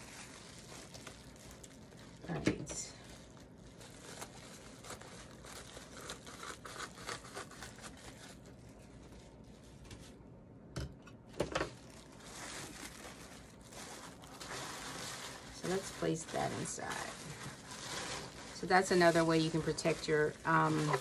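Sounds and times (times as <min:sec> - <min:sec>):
bubble wrap crinkling: 0:00.0 - 0:10.2, 0:11.5 - 0:21.0.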